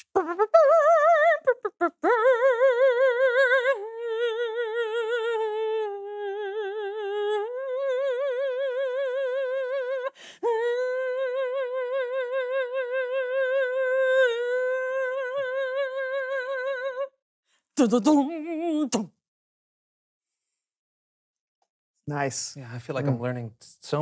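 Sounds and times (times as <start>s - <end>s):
woman singing operatic notes: 0.0s - 17.2s, 17.8s - 19.2s.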